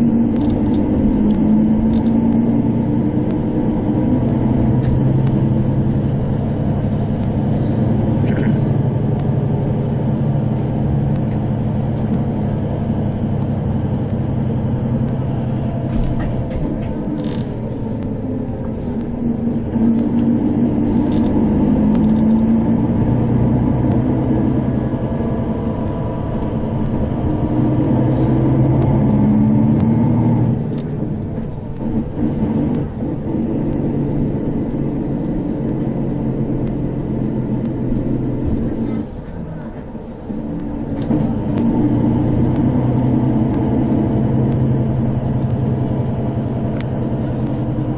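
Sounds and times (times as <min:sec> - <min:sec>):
bus engine and road rumble: 0:00.0 - 0:47.9.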